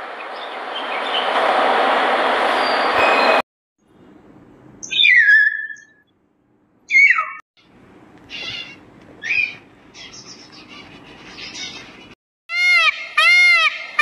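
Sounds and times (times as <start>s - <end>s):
loud peacock call: 12.5s - 14.0s.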